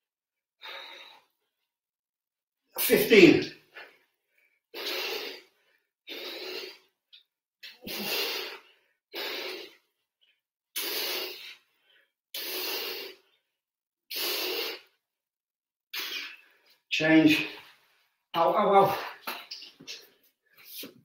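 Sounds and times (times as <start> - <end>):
man breathing hard: 0.6 - 1.5, 3.7 - 7.0, 7.7 - 9.9, 10.8 - 13.5.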